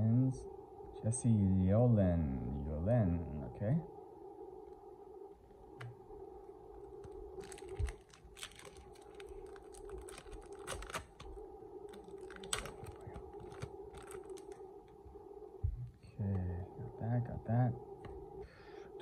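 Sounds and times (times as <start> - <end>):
faint steady hum: 0.0 - 19.0
foil wrapper crinkling: 7.4 - 14.6.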